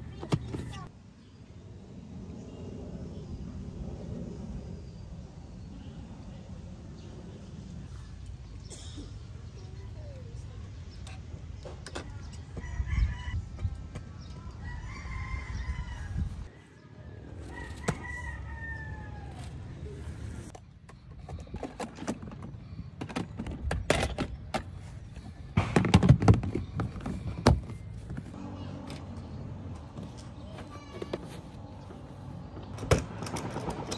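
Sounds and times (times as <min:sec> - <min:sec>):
rooster crowing: 0:17.4 - 0:19.5
camping gear clattering: 0:20.9 - 0:28.4.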